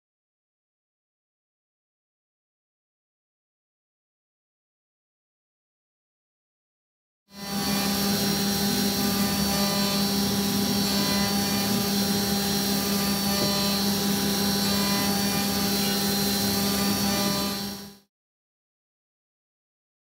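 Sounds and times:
milling machine humming: 7.4s - 18.0s.

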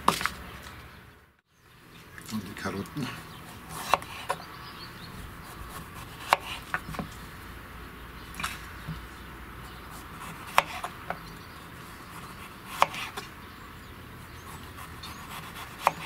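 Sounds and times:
knife slicing carrot: 3.1s - 4.4s, 5.6s - 7.1s, 10.2s - 11.0s, 12.3s - 13.3s, 14.8s - 16.0s.

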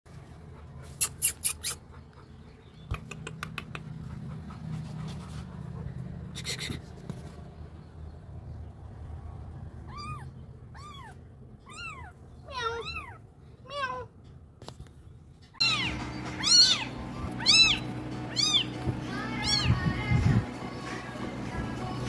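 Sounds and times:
sharp clicks: 2.9s - 3.9s
kitten mewing: 9.9s - 14.1s, 15.6s - 19.8s
low steady hum: 15.6s - 22.0s.

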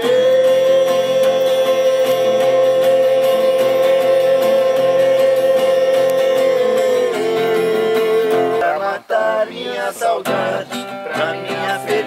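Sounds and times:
long held guitar note: 0.0s - 8.6s
strummed acoustic guitar chords: 0.0s - 12.0s.

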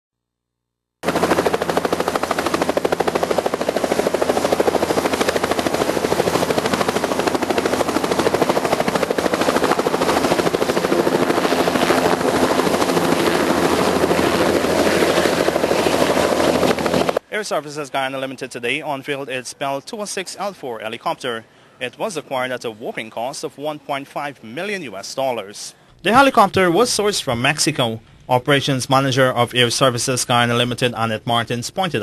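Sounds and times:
helicopter rotor chopping: 1.0s - 18.4s.

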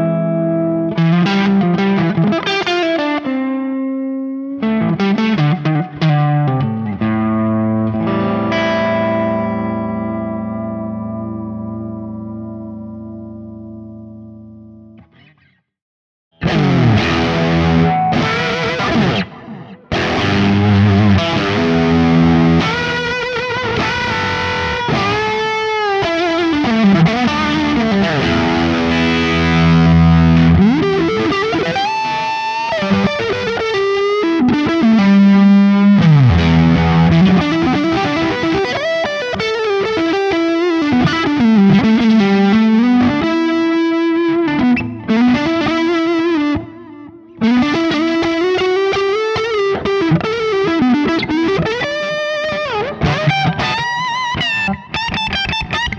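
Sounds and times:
distorted fuzzy electric guitar: 0.0s - 14.9s, 16.3s - 55.9s.

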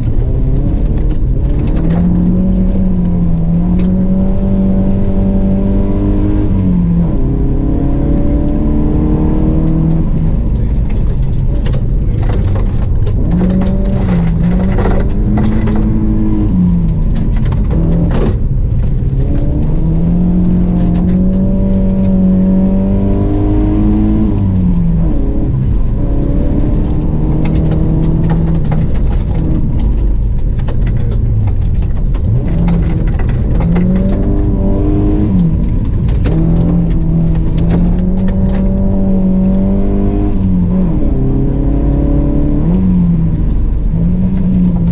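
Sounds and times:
rally car engine accelerating: 0.0s - 44.9s
sharp clatters: 10.4s - 19.7s, 26.7s - 39.6s.

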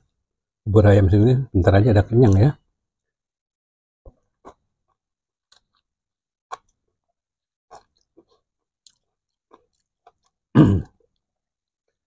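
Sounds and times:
chewing mouth sounds: 6.5s - 6.8s, 7.7s - 12.0s.

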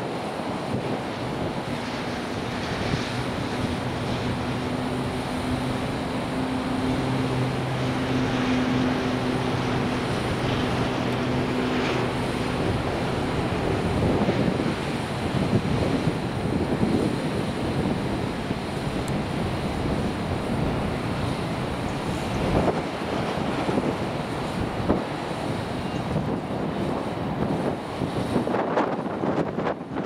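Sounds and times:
low engine hum: 0.0s - 30.0s
wide rushing background: 0.0s - 30.0s.

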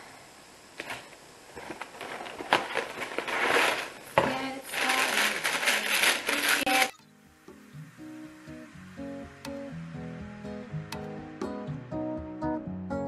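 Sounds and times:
plastic bag crinkling: 0.8s - 7.0s.

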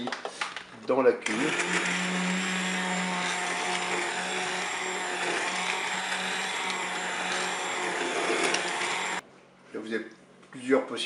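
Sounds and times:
immersion blender running: 1.3s - 9.2s.

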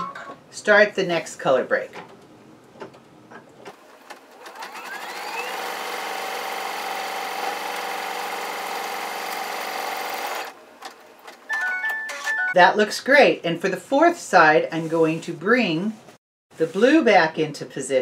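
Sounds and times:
embroidery machine stitching: 4.0s - 10.6s.

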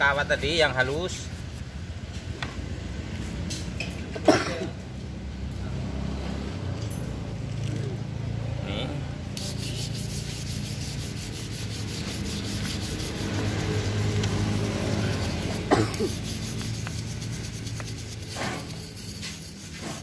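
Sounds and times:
wire brush scrubbing metal: 0.0s - 1.8s, 9.4s - 20.0s.

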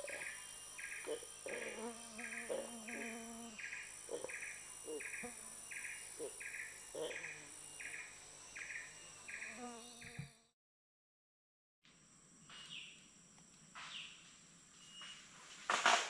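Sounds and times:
high-pitched insect whines: 0.0s - 10.5s
pulsing insect buzzing call: 0.0s - 10.5s.

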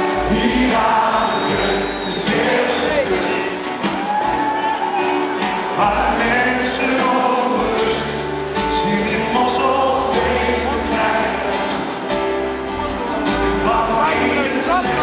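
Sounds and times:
upright bass: 0.0s - 3.8s, 5.4s - 15.0s
acoustic guitar: 0.0s - 15.0s
person singing: 0.0s - 15.0s
piano: 0.0s - 15.0s.

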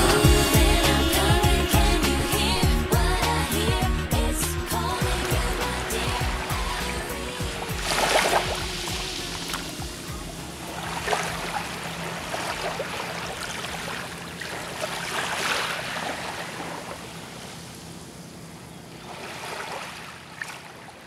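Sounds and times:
waves lapping on sand: 5.1s - 18.0s, 18.9s - 21.0s.

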